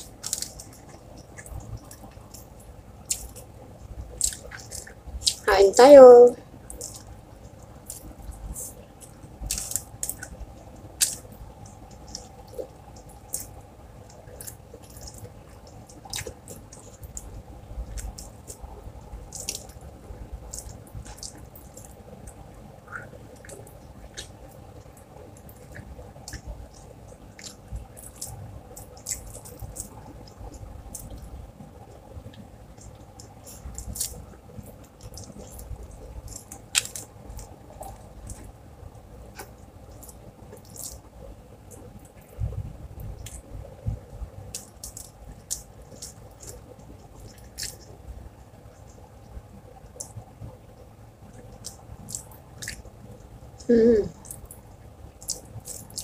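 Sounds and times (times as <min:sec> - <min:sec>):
lip smacks and chewing: 0:00.0 - 0:03.5, 0:04.1 - 0:05.5, 0:06.7 - 0:10.4, 0:11.0 - 0:38.6, 0:39.3 - 0:41.1, 0:44.5 - 0:48.0, 0:49.8 - 0:50.2, 0:51.2 - 0:53.4, 0:54.2 - 0:56.0
faint steady hum: 0:00.0 - 0:56.0.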